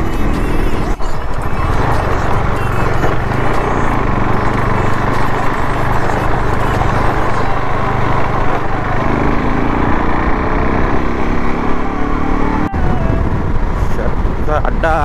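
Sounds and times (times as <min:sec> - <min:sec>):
motorcycle engine accelerating: 0:00.0 - 0:15.0
wind rushing over microphone: 0:07.4 - 0:15.0.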